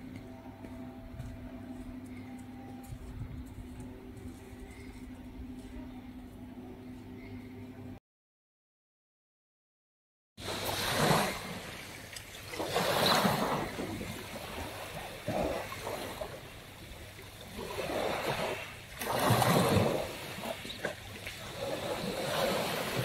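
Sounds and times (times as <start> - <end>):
waves washing on pebble beach: 10.4 - 23.0.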